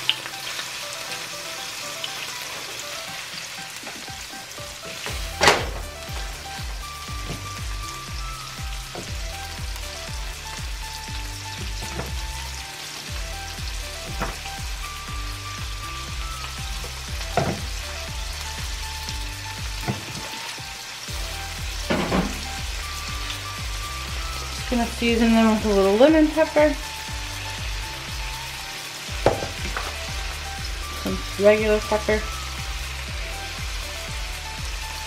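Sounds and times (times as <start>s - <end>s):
background music with low beat: 0.0s - 35.0s
shrimp sizzling in oil: 0.0s - 35.0s
knocks against pan: 17.4s - 17.6s.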